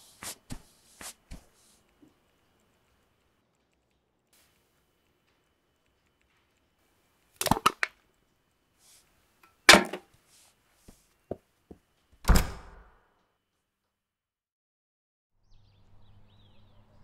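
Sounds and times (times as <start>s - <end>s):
door shutting with heavy thud: 12.2s - 12.9s.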